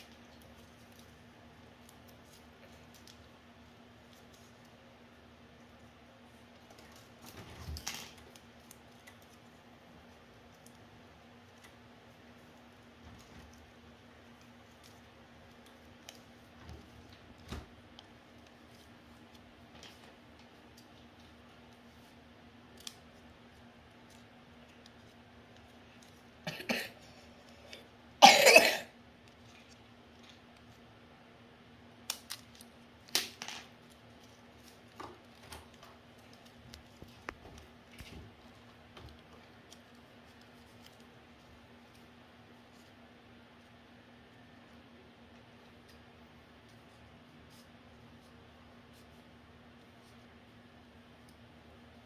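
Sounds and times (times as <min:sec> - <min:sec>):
person coughing: 0:26.5 - 0:27.1, 0:28.2 - 0:29.0
paper crackling: 0:32.0 - 0:43.8.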